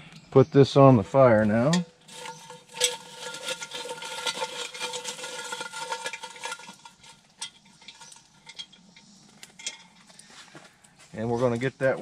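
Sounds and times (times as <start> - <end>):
metal utensil scraping pot: 1.2 - 10.4.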